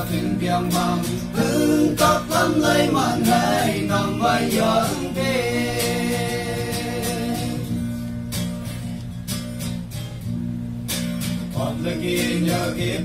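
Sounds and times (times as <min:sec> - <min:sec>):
men singing together: 0:00.0 - 0:07.7, 0:11.5 - 0:13.0
acoustic guitar strumming: 0:00.0 - 0:13.0.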